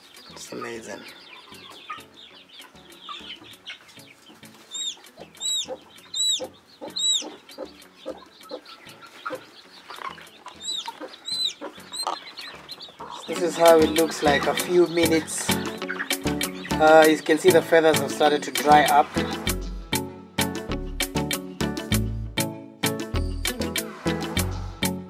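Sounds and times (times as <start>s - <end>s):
chicks peeping: 0.0s - 19.6s
hen clucking: 0.2s - 19.6s.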